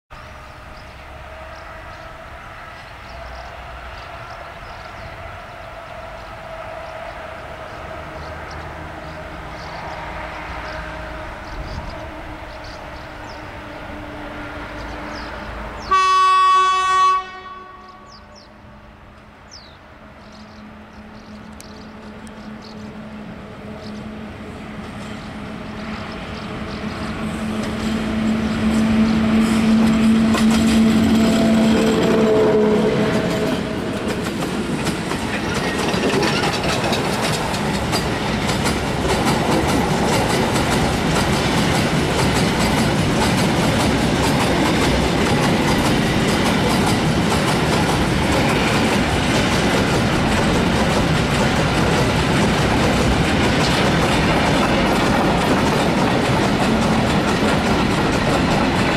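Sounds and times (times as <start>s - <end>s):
electric locomotive humming: 0.1s - 58.9s
train wheels clattering over joints: 33.1s - 58.9s.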